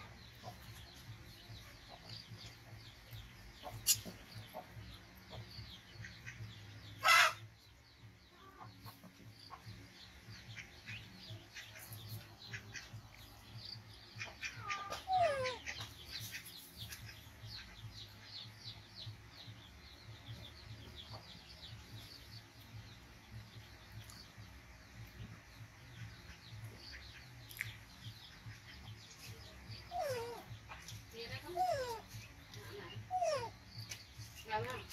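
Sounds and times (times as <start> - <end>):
chickens clucking: 0.0 - 34.9
small birds chirping: 0.0 - 34.9
falling bird calls: 6.0 - 7.7.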